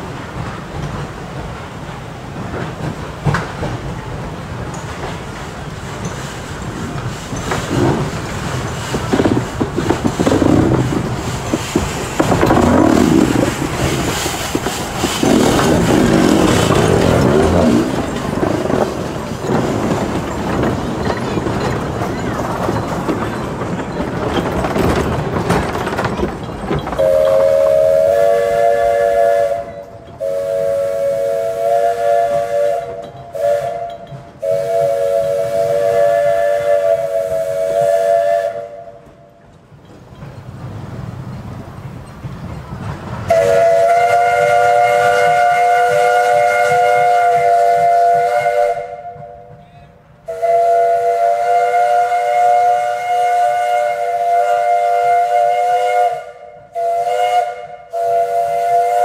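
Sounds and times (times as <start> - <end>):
rush of steam: 0.0 - 59.0
steam whistle blasts: 27.0 - 39.0, 43.3 - 49.5, 50.3 - 59.0.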